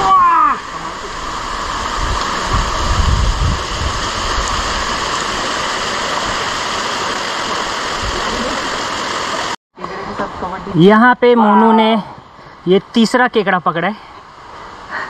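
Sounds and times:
stream and waterfall rushing: 0.0s - 15.0s
low rumble on microphone: 1.2s - 4.9s.

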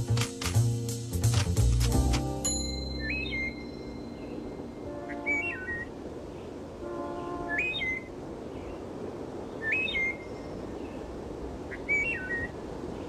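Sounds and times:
soft held chord: 1.9s - 6.1s
robin singing: 2.2s - 11.1s, 11.7s - 13.0s.

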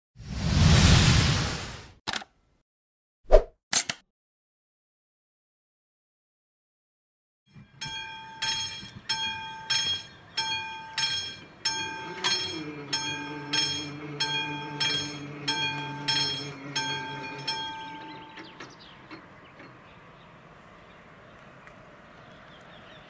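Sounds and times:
level crossing bell ringing: 7.7s - 18.8s.

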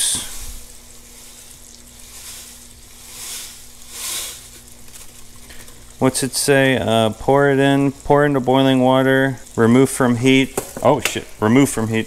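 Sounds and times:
couscous pouring into water: 0.0s - 6.4s
fish sizzling in frying pan: 0.0s - 12.0s.

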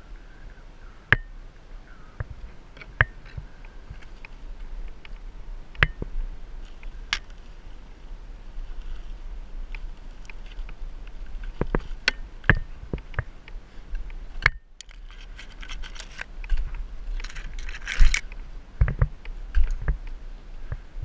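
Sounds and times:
rustling: 2.2s - 20.9s
rope scraping bark: 6.5s - 18.4s
rigging gear clicks and knocks: 14.4s - 20.0s.

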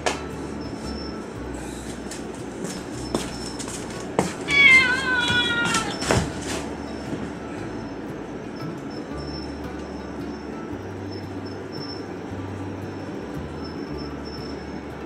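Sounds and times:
cat meowing: 4.5s - 6.3s.

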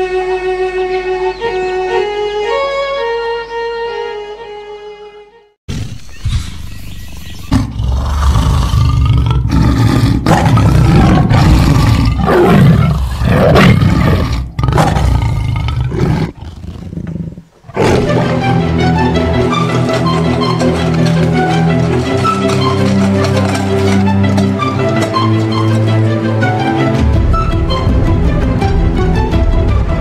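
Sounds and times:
music: 0.0s - 5.6s, 17.8s - 30.0s
animal roars and growls: 7.4s - 18.6s.

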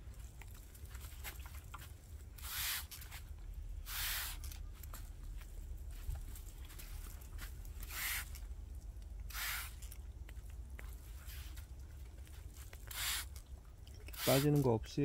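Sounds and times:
low steady rumble: 0.0s - 15.0s
sprayer hissing bursts: 2.4s - 3.0s, 3.8s - 4.5s, 7.8s - 8.4s, 9.3s - 9.9s, 12.9s - 13.4s, 14.1s - 14.7s.

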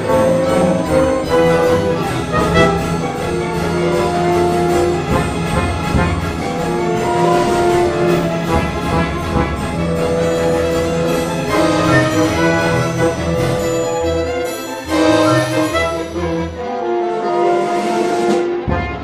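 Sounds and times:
orchestral music with brass: 0.0s - 19.0s.

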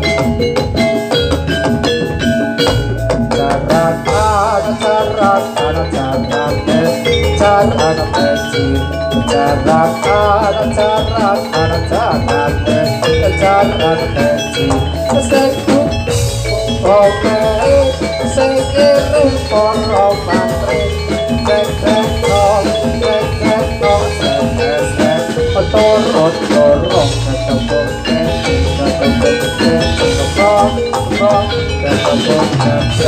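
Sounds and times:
metallophones ringing: 0.0s - 33.0s
steady drumming: 0.0s - 33.0s.

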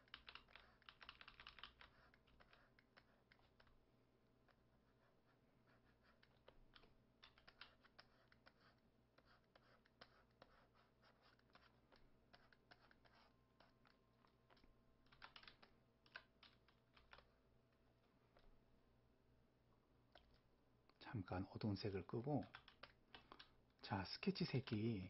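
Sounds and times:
keyboard and pen clicking: 0.0s - 3.7s, 6.2s - 8.2s, 14.5s - 17.3s, 22.4s - 23.5s
low steady hum: 8.3s - 25.0s.

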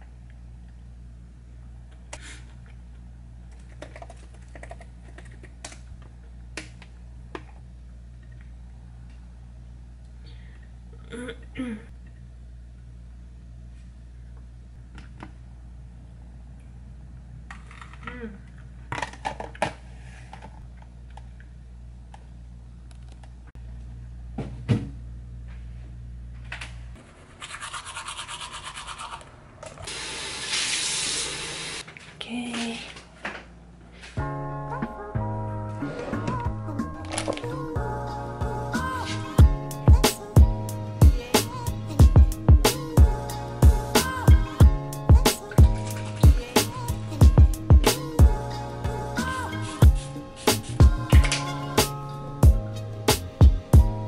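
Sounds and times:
low room hum: 0.0s - 54.0s
toothbrush scrubbing: 27.1s - 29.3s
steady low hum: 31.9s - 54.0s.

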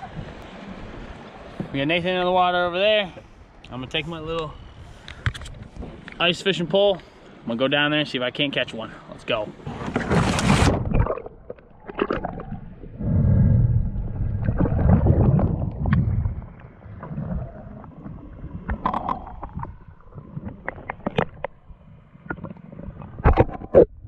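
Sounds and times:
muffled underwater water rush: 0.0s - 3.6s, 9.4s - 24.0s
sharp underwater clicks and knocks: 5.0s - 6.2s, 14.4s - 16.7s, 18.6s - 24.0s.

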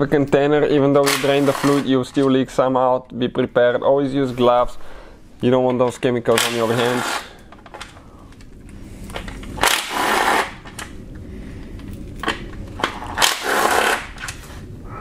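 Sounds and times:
power tool spinning out bolts: 9.6s - 10.7s, 13.1s - 14.2s.

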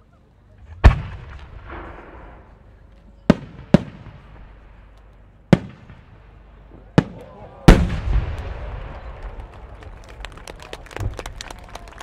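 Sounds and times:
firework shell deep boom: 0.6s - 2.6s
sharp firework bangs: 0.7s - 2.6s.

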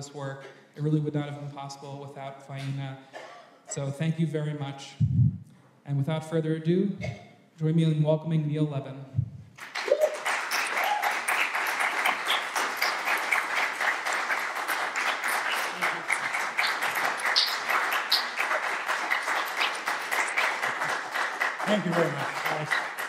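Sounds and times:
audience applauding: 9.6s - 23.0s.

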